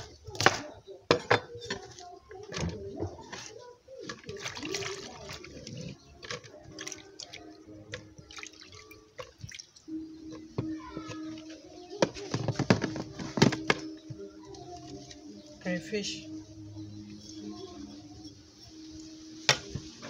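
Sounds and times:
dripping water: 4.0s - 11.6s.

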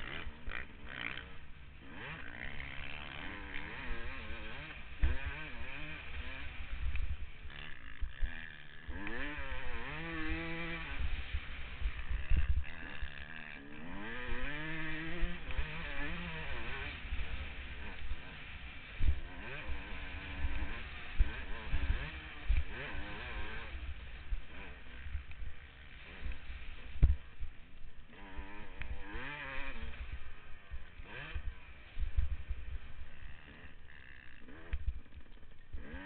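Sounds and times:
two-stroke motorcycle engine revving: 0.0s - 36.0s
low thumps on microphone: 27.0s - 27.3s.

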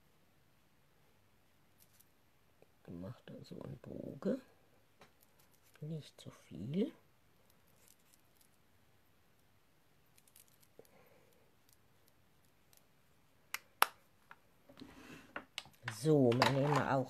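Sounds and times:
makeup containers clicking: 15.5s - 16.9s.

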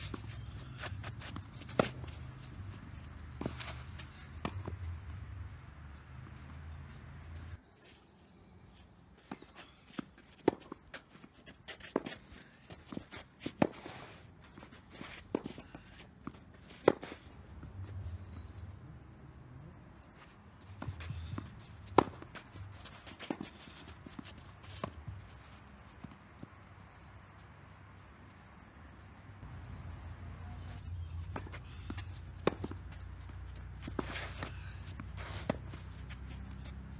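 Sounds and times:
shoes sliding on clay: 0.0s - 4.7s, 6.0s - 18.0s, 20.1s - 26.4s, 30.6s - 36.9s
rackets hitting tennis ball: 0.0s - 7.5s, 9.2s - 18.6s, 20.2s - 26.5s, 29.9s - 36.9s
ball bouncing: 31.2s - 35.7s.

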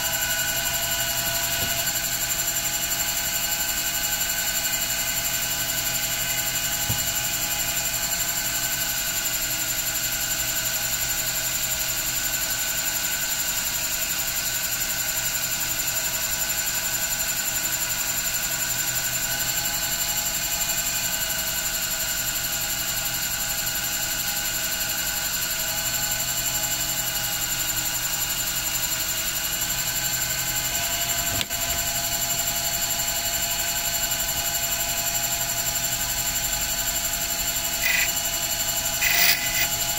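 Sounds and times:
metal lathe whining: 37.8s - 38.2s, 38.9s - 39.9s.

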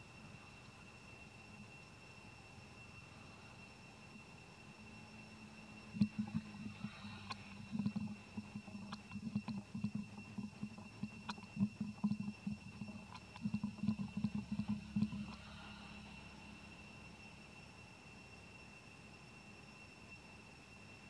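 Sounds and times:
faint steady high whine: 0.0s - 21.0s
baby monkey sucking and swallowing: 6.0s - 16.0s.

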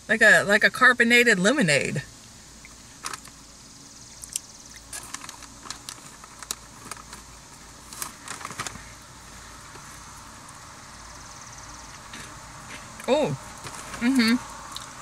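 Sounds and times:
steady low hum: 0.0s - 15.0s
plastic snack bag crinkling: 4.9s - 9.0s.

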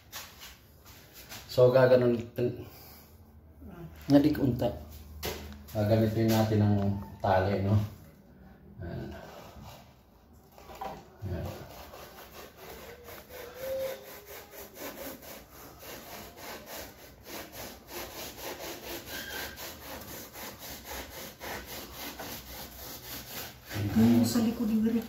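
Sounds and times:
hand saw cutting wood: 10.5s - 25.0s.

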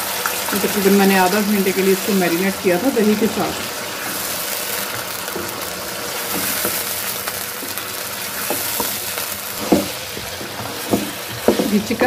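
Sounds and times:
chicken sizzling in hot oil: 0.0s - 12.0s
spatula knocking against pan: 9.6s - 11.9s.

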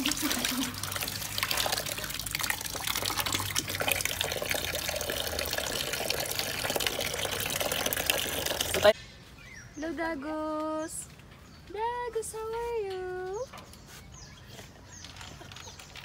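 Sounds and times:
hand stirring water: 0.0s - 8.9s
tap water pouring into bucket: 0.0s - 8.9s.

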